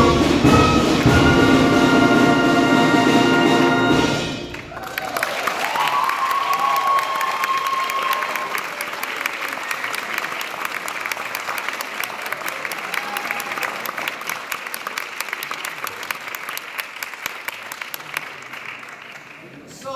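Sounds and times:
audience applauding: 0:04.4 - 0:19.9.

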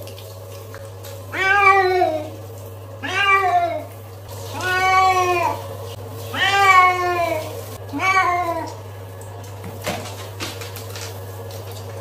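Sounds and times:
cat meowing: 0:01.3 - 0:02.3, 0:03.0 - 0:03.9, 0:04.5 - 0:05.6, 0:06.3 - 0:08.8.

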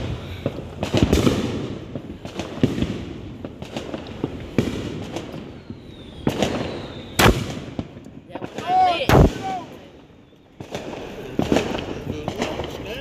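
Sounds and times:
firework bang: 0:00.0 - 0:09.8, 0:10.6 - 0:13.0
firecrackers cracking and popping: 0:00.0 - 0:13.0
falling firework whistle: 0:05.4 - 0:07.8.

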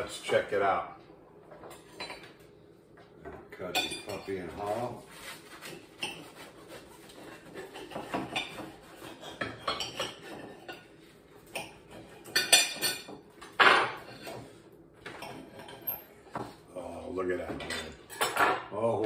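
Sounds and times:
cutlery scraping on plates: 0:03.8 - 0:16.2, 0:17.6 - 0:18.7
cutlery clattering: 0:11.5 - 0:14.4, 0:17.6 - 0:18.7.

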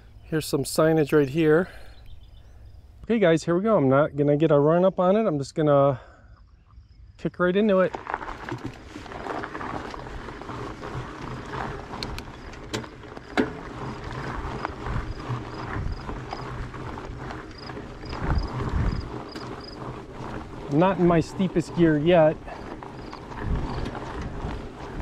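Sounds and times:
bike tyres rolling over dirt: 0:00.0 - 0:05.6, 0:07.3 - 0:25.0
wind buffeting microphone: 0:09.2 - 0:25.0.

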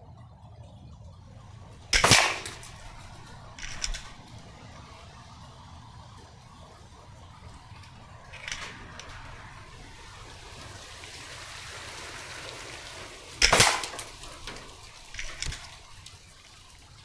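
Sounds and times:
low background hiss: 0:00.0 - 0:17.0
air rifle shot: 0:01.9 - 0:04.2, 0:13.4 - 0:14.6.

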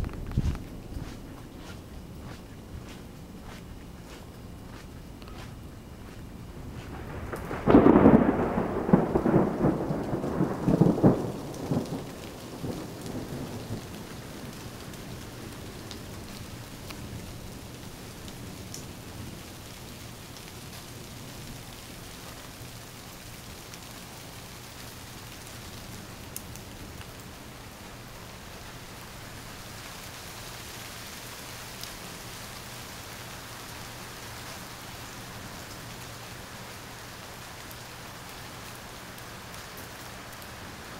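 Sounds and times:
steady rain: 0:00.0 - 0:40.9
thunder rolling: 0:05.9 - 0:14.9.

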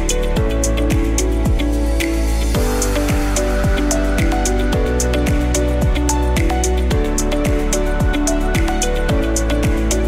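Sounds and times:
deep kick drum: 0:00.4 - 0:01.6, 0:02.6 - 0:09.9.

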